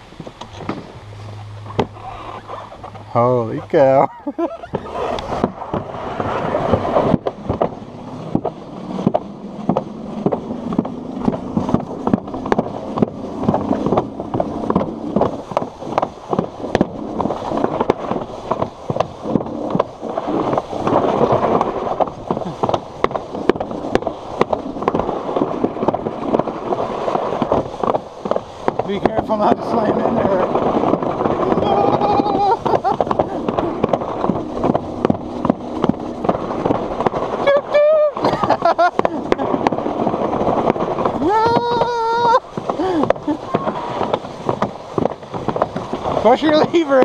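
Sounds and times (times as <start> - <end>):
sled rumbling down concrete track: 0.0 - 47.0.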